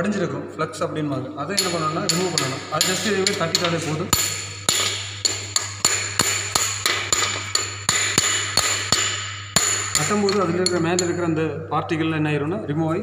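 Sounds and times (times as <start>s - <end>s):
steady low hum: 0.0s - 11.9s
chipping hammer striking metal: 1.6s - 11.2s.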